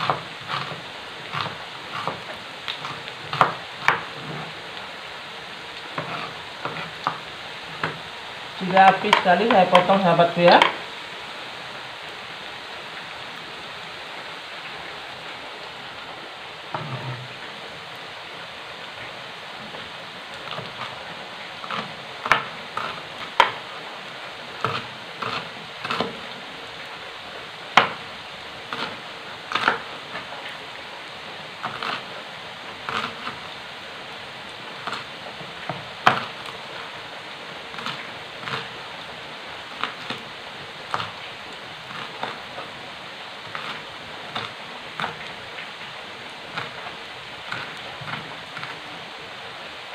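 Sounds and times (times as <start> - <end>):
frying sizzle in hot oil: 0.0 - 49.9
knife chopping on cutting board: 2.8 - 4.4.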